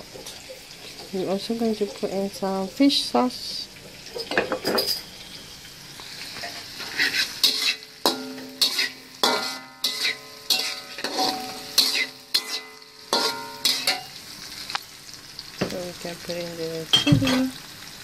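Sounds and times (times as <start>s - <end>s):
frying sizzle: 0.0s - 18.0s
spatula scraping in pan: 6.2s - 14.2s
metal pan ringing: 7.4s - 14.1s.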